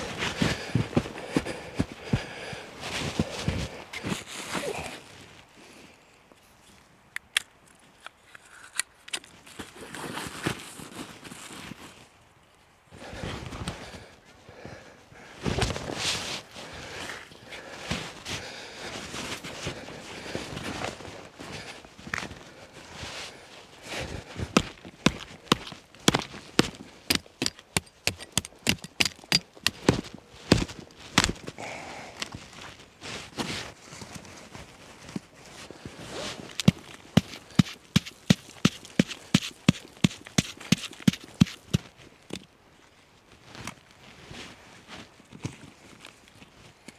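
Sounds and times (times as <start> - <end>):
boots crunching through snow: 0.0 - 5.0
rustling of gear: 8.0 - 12.2, 15.2 - 42.6, 43.3 - 46.9
knife chopping wooden stick: 36.6 - 41.9.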